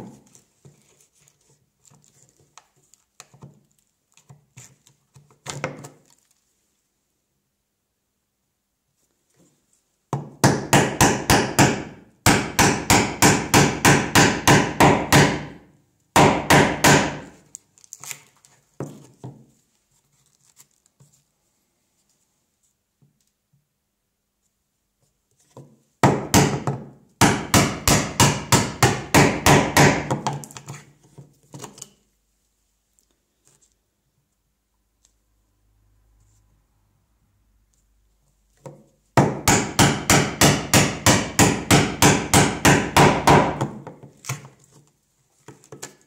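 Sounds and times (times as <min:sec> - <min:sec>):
faint taps and scrapes: 0:00.0 - 0:06.8, 0:09.0 - 0:10.0, 0:17.5 - 0:23.7, 0:24.4 - 0:25.9, 0:32.8 - 0:34.4.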